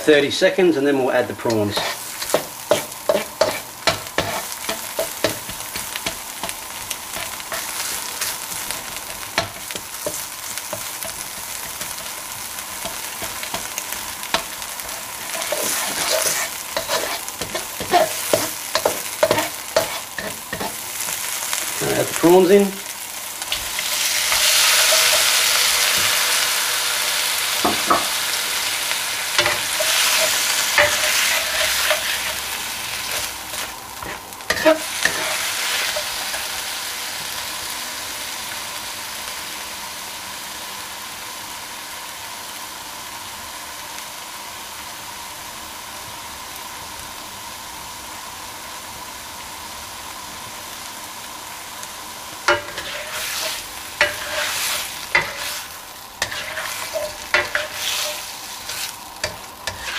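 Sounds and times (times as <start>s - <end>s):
prawns sizzling in hot oil: 0.0s - 59.9s
spatula scraping a wok: 1.4s - 21.8s, 23.4s - 36.7s, 52.5s - 59.9s.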